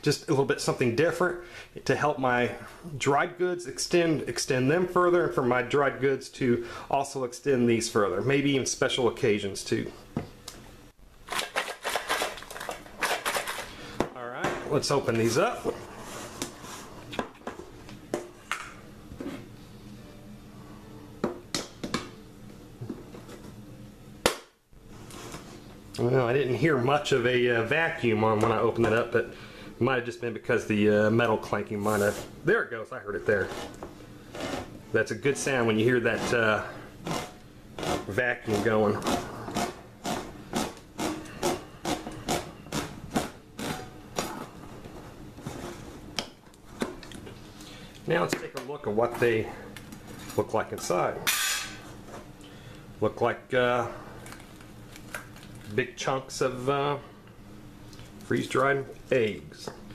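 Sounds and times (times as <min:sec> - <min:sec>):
can opener clicking and scraping: 0:11.3 - 0:13.7.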